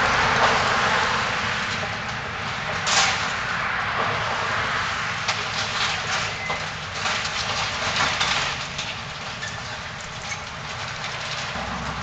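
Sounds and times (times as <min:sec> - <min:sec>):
debris crunching and clattering: 0:01.7 - 0:04.3, 0:05.2 - 0:12.0.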